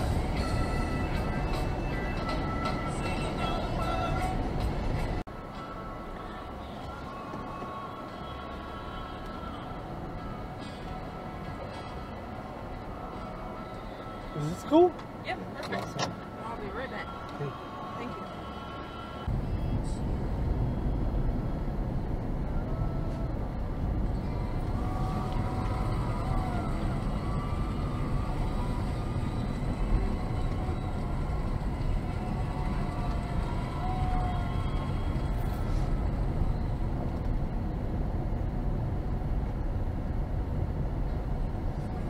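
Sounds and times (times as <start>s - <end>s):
car cabin engine and tyre rumble: 0.0s - 42.0s.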